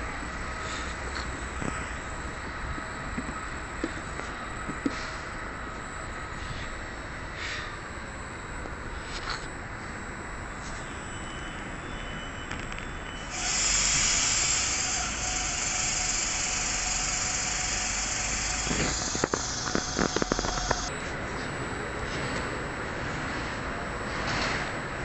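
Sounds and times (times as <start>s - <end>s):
compressed air hissing: 13.2s - 20.9s.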